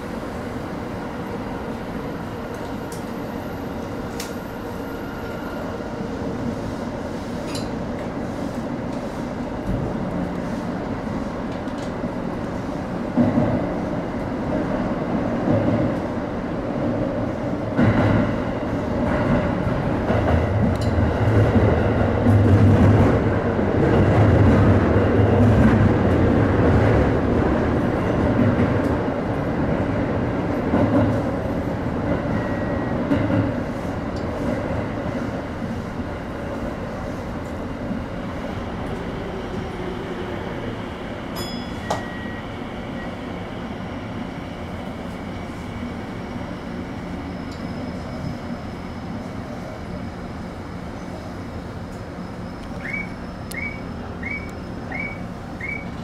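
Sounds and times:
train wheels on rails: 0:00.0 - 0:56.0
high brake squeals: 0:47.2 - 0:48.6, 0:52.1 - 0:56.0.

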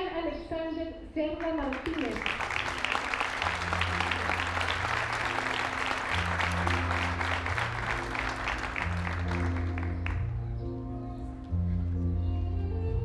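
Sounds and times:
audience applauding: 0:01.6 - 0:10.3
background music low notes: 0:02.3 - 0:13.0.

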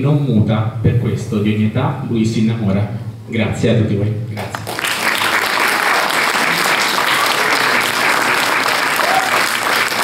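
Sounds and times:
audience applauding: 0:04.4 - 0:10.0.

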